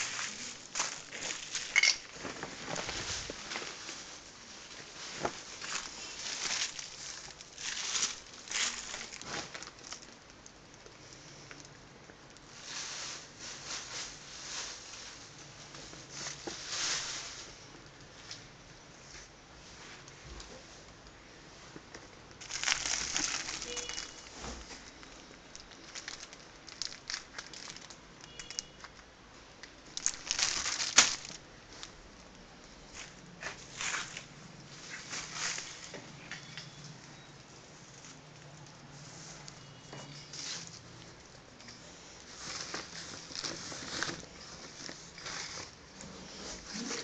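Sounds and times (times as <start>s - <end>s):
plastic bags crinkling: 0.0s - 11.8s, 22.3s - 32.4s, 33.0s - 36.6s, 39.4s - 47.0s.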